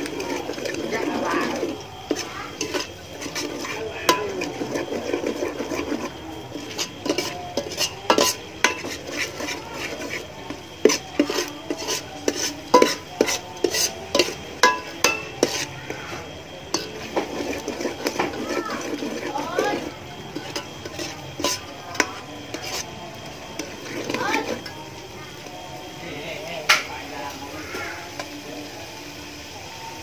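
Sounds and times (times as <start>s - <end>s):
spoon clinking against metal pot: 0.0s - 16.0s, 16.7s - 22.9s
metal spoon stirring thick mixture: 0.0s - 29.5s.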